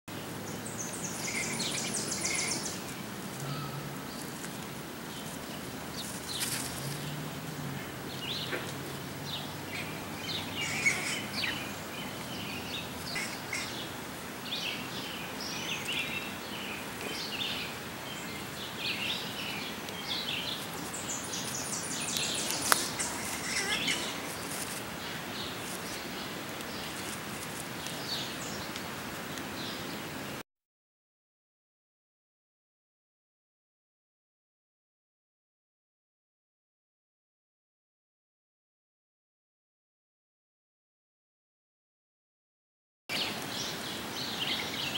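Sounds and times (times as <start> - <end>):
small birds chirping: 0.1 - 30.4, 43.1 - 44.9
fast high bird trill: 1.1 - 2.8, 9.7 - 11.8.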